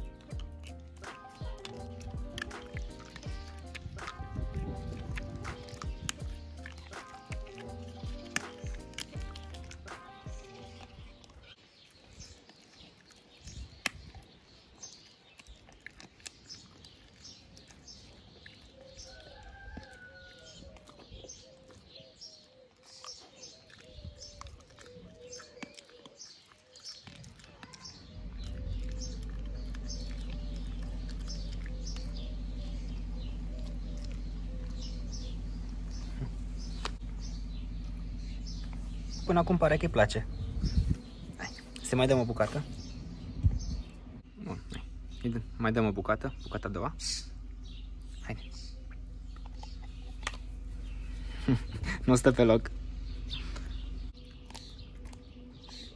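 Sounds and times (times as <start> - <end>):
steady low hum: 0.0 - 11.3, 28.1 - 55.9
dog chewing with crunching clicks: 0.0 - 44.0, 47.6 - 51.3, 53.6 - 55.9
faint birds chirping: 0.0 - 55.9.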